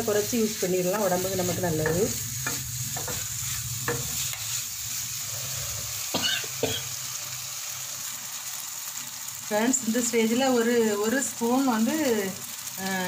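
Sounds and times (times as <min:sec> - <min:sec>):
chicken and onion sizzling: 0:00.0 - 0:13.0
wooden spatula scraping pan: 0:01.0 - 0:06.0.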